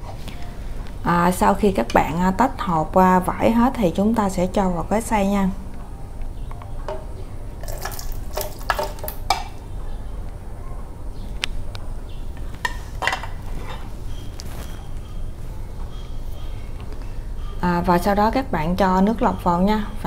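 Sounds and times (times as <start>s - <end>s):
metal spoon scraping a bowl: 12.6s - 14.8s.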